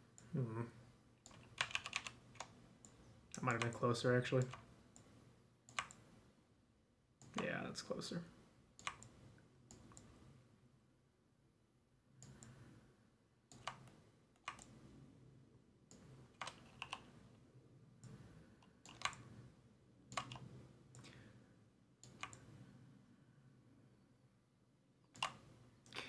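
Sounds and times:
keyboard and mouse clicks: 1.2s - 3.8s, 4.4s - 6.1s, 7.2s - 7.5s, 8.8s - 10.2s, 12.2s - 12.6s, 13.5s - 14.8s, 15.9s - 17.2s, 18.0s - 19.2s, 20.1s - 21.1s, 22.0s - 22.5s, 25.1s - 25.5s.

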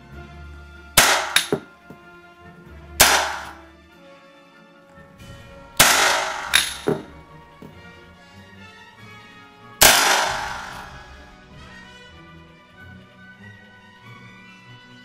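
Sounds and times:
rifle blank shots: 1.0s - 1.7s, 3.0s - 3.6s, 5.8s - 7.2s, 9.8s - 11.1s.

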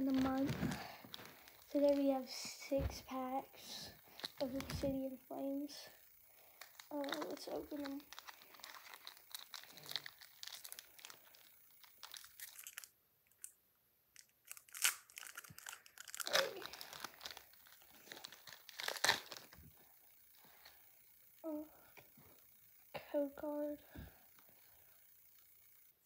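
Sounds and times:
foil wrapper crinkling and tearing: 0.0s - 2.0s, 4.0s - 4.8s, 6.3s - 13.6s, 14.2s - 20.8s.

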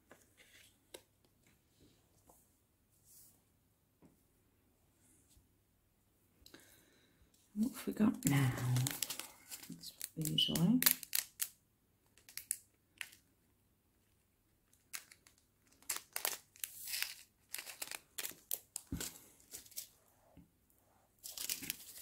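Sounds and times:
plastic packet crinkling and tearing: 8.2s - 11.6s, 12.2s - 13.2s, 14.8s - 20.0s, 21.2s - 22.0s.

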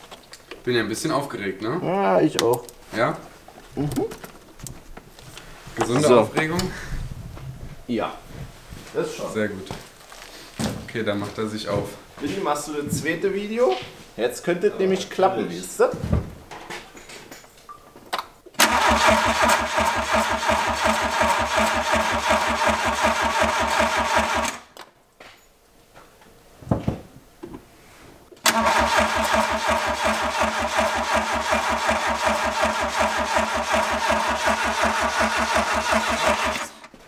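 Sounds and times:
engine cranking on starter motor: 18.6s - 24.8s, 28.4s - 37.0s.

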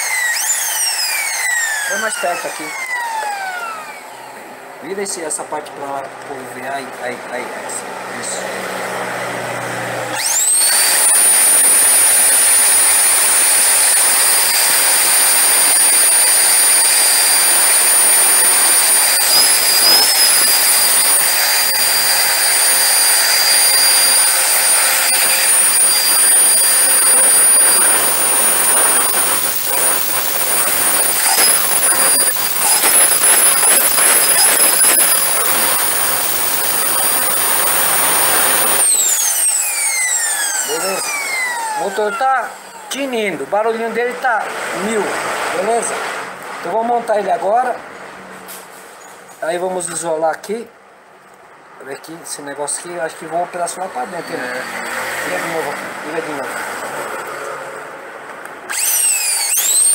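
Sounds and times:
vacuum cleaner motor whine: 0.0s - 4.5s, 8.5s - 22.1s, 22.8s - 42.9s, 58.7s - 59.9s.

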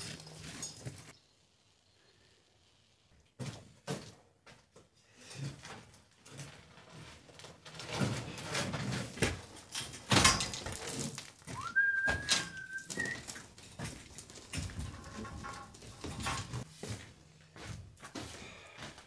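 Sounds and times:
metal scaffold knocking and rattling: 7.8s - 11.2s, 13.7s - 16.7s
high whistling tone: 11.6s - 13.3s.

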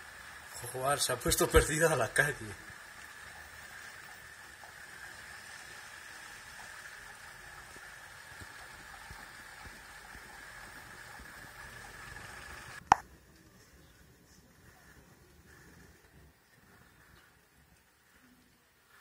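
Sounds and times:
storm runoff water rushing: 0.0s - 12.8s.

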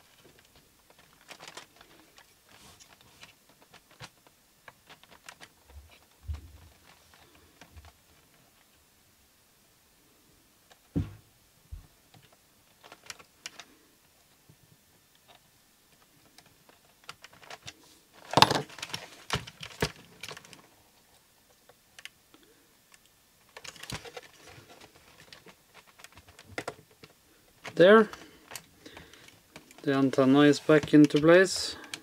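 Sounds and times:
plastic clatter: 16.0s - 20.6s, 23.5s - 29.9s
handling noise: 16.9s - 20.6s.

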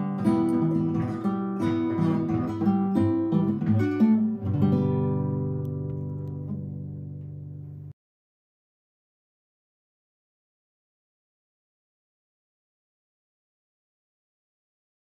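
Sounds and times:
acoustic guitar music: 0.0s - 8.0s.

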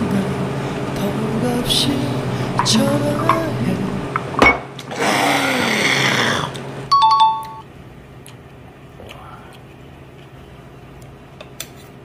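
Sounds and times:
two-note doorbell chime: 6.9s - 7.6s.

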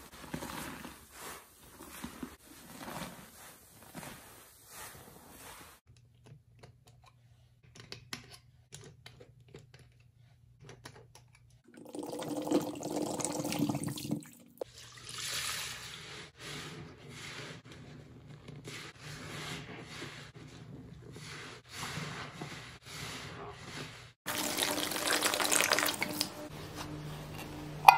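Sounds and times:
wet sponges squelching in foam: 0.0s - 5.9s, 18.6s - 27.8s
liquid soap pouring: 11.7s - 16.2s, 24.3s - 26.5s.

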